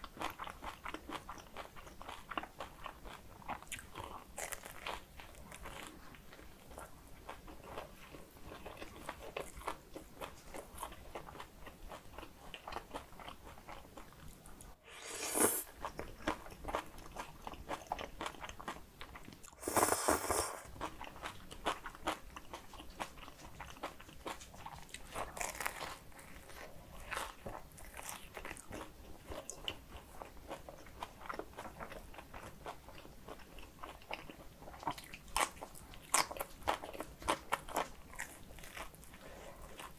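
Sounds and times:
biting and chewing bread: 0.0 - 14.7, 15.7 - 39.9
slurping: 14.8 - 15.7, 19.6 - 20.7.

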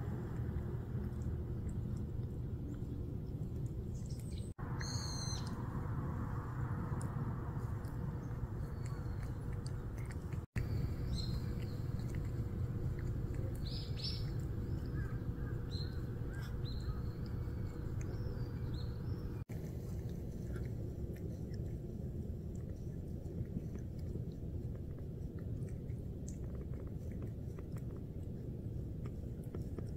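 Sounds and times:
cat licking: 0.0 - 4.3, 6.2 - 29.9
low background rumble: 0.0 - 29.9
small birds chirping: 0.1 - 5.7, 6.7 - 19.5.

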